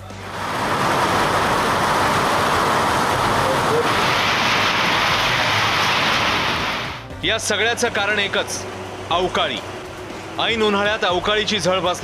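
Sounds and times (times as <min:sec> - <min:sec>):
heavy rain on metal roofs: 0:00.0 - 0:07.0.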